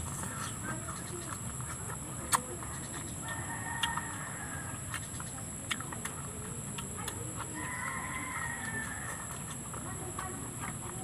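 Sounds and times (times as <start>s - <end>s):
clicks and smacks of eating: 0.0s - 11.0s
rooster crowing: 3.2s - 4.9s, 7.6s - 9.4s.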